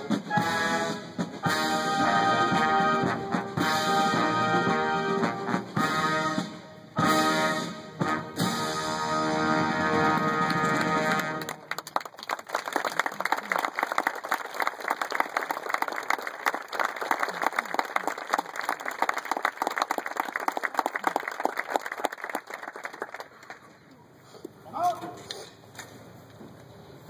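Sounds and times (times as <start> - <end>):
brass band chord: 0.0 - 11.6
audience applauding: 9.8 - 23.8.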